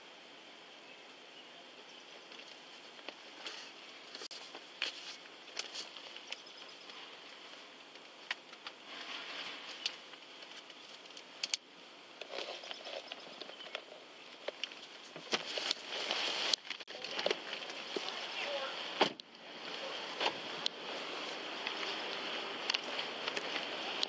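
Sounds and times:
paper rustling: 2.4 - 7.7, 14.5 - 18.3
small clicks and taps: 9.8 - 11.6.

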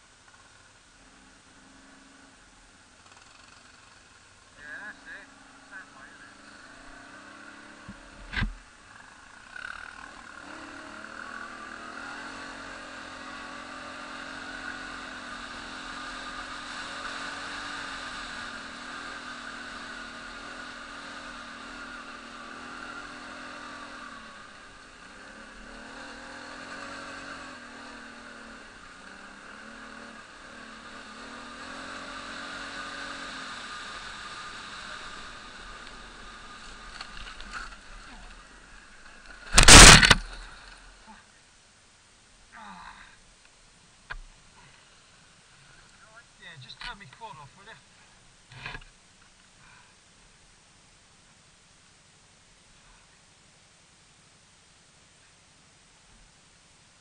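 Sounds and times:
quad bike engine revving: 3.0 - 41.3.

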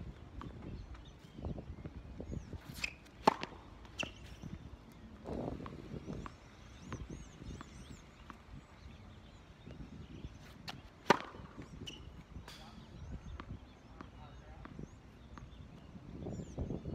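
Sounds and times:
tennis ball bouncing taps: 2.8 - 8.4, 10.7 - 12.0, 13.2 - 15.9
tennis ball sharp knock: 11.1 - 11.4.

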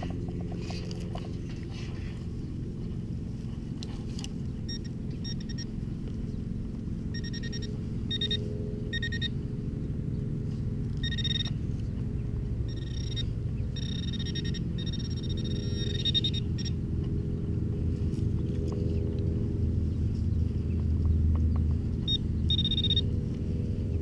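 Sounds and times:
steady low rumble: 0.0 - 24.0
metal detector beeps: 4.6 - 5.8, 7.1 - 9.4, 11.0 - 11.6, 12.6 - 16.8, 22.0 - 23.1.

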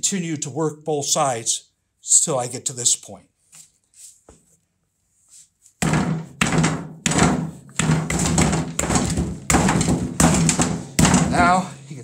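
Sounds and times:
mallet thuds: 5.8 - 11.6.

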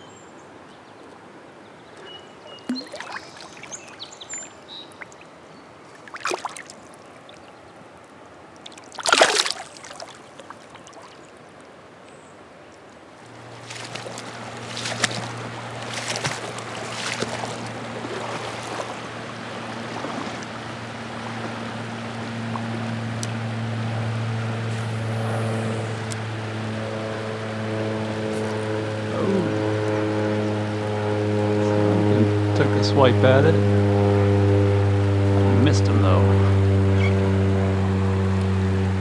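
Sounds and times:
water splashing: 1.8 - 11.8, 12.7 - 32.5
wading steps sloshing: 2.0 - 7.5, 8.6 - 11.4, 13.2 - 23.8
steady low hum: 13.1 - 39.0.

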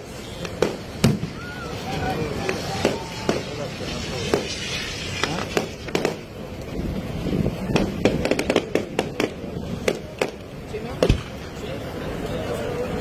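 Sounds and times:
fireworks bangs and pops: 0.0 - 11.8
crackling fireworks reports: 0.0 - 13.0.

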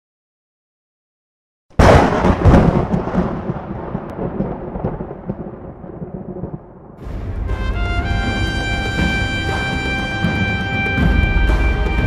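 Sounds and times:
thunder cracking and rumbling: 1.8 - 7.9.

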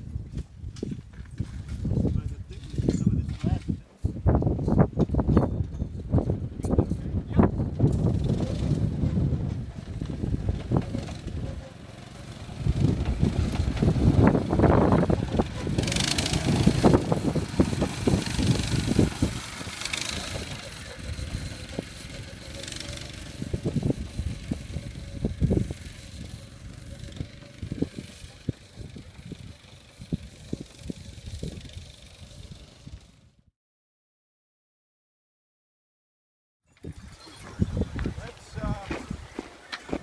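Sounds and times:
cart rattling over dirt: 0.3 - 33.3
wind hiss on microphone: 36.8 - 39.4.

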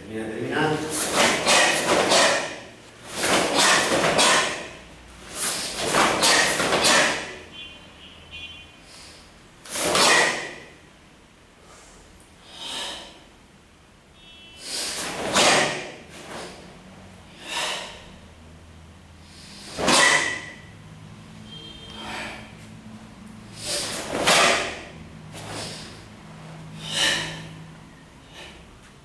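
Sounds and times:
swish of martial arts moves: 0.8 - 7.4, 9.6 - 10.6, 14.7 - 16.7, 23.6 - 27.6
sharp bursts of breath: 0.9 - 7.4, 8.8 - 10.6, 11.6 - 13.3, 14.5 - 16.6, 17.2 - 18.3, 19.1 - 20.7, 21.6 - 22.7, 23.4 - 28.8.

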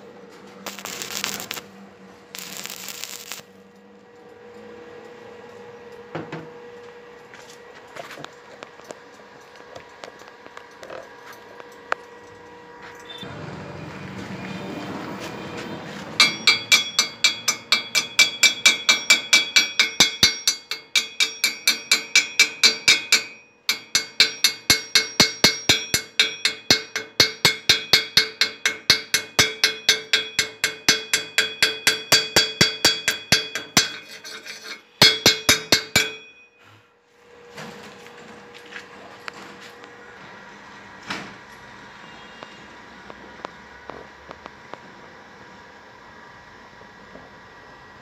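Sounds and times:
hammer striking metal: 15.9 - 36.8.

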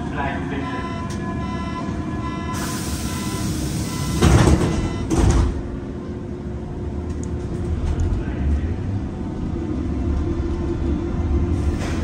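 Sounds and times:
sliding doors hissing: 2.6 - 4.8, 11.6 - 12.0
train doors banging shut: 4.0 - 5.6.

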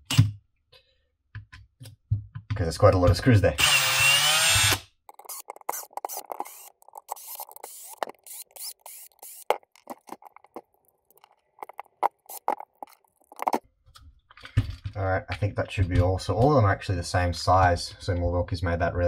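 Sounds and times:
tools and screws clicking and scraping: 3.6 - 14.9.

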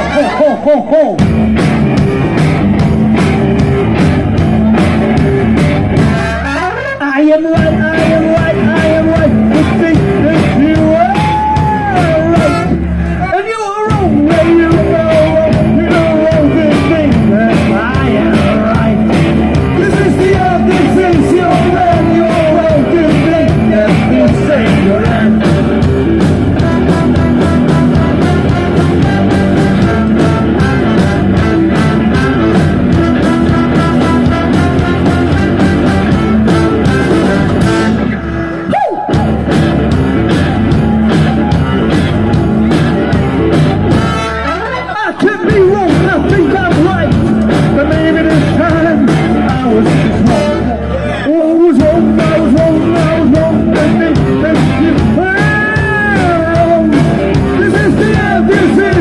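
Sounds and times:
drum kit: 0.0 - 50.8, 51.6 - 59.0
electric guitars: 0.0 - 59.0
person singing: 6.3 - 25.8, 44.7 - 59.0.

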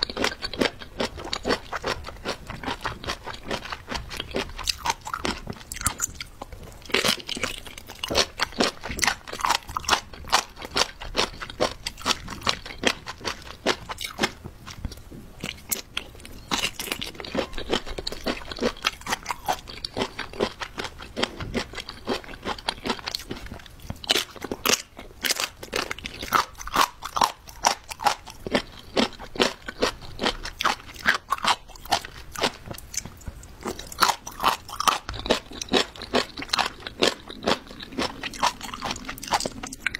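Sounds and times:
crisp crunchy chewing: 0.0 - 39.9.

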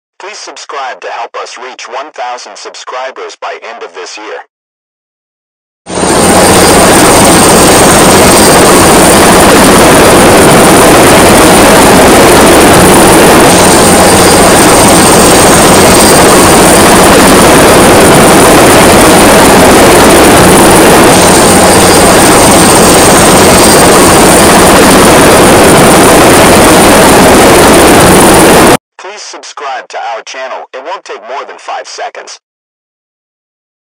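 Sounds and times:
helicopter rotor and engine: 5.9 - 28.8
high turbine whine: 5.9 - 28.8.

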